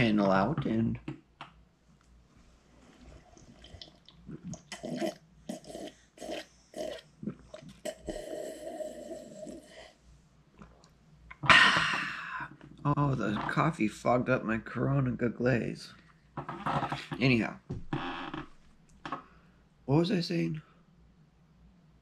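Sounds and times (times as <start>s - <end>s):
person speaking: 0.0s - 1.1s, 11.4s - 16.0s, 16.6s - 17.8s, 19.9s - 20.6s
person gulping coffee: 3.2s - 9.7s, 10.6s - 12.8s.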